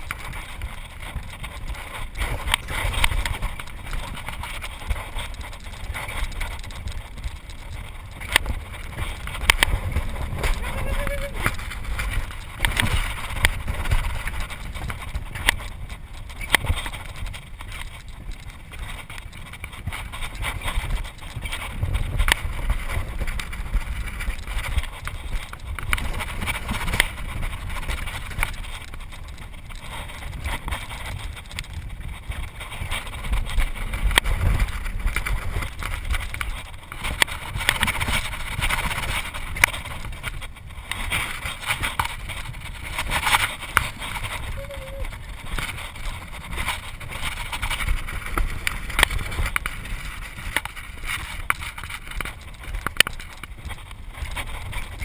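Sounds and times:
sled wheels rumbling on steel track: 0.0 - 55.0
wind on microphone: 0.0 - 55.0.

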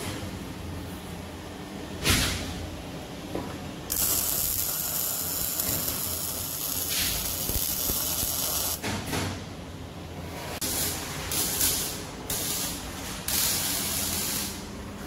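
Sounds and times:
welder arc crackling: 3.9 - 8.8.

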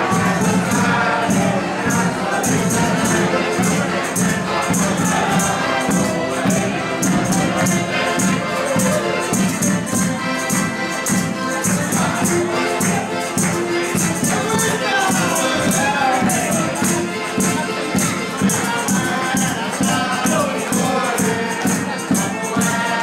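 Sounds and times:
accordion holding chords: 0.0 - 23.0
hand drum: 0.0 - 23.0
jingling percussion: 0.0 - 23.0.

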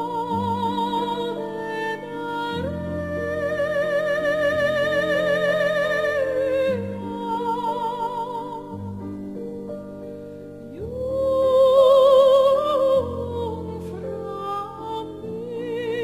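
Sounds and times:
slow melody with vibrato: 0.0 - 16.0.

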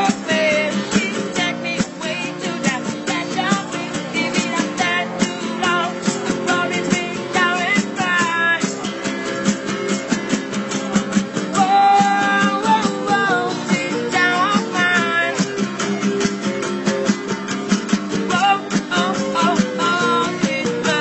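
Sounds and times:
person singing: 0.0 - 9.9, 10.5 - 16.0, 18.1 - 21.0
strummed acoustic guitar: 0.0 - 21.0.

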